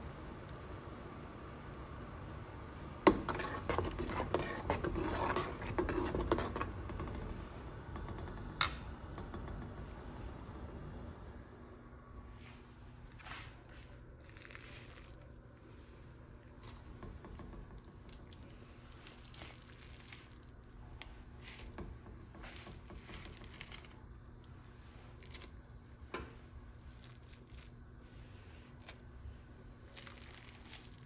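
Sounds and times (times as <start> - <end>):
faint steady hum: 0.0 - 31.0
soft squishy scrapes of rice: 3.1 - 6.8, 12.2 - 17.0, 18.0 - 31.0.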